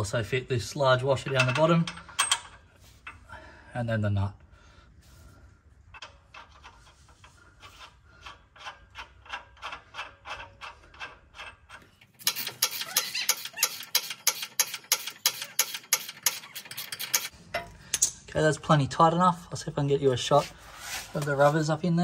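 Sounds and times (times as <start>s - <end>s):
ratchet spanner clicking: 8.2s - 17.3s.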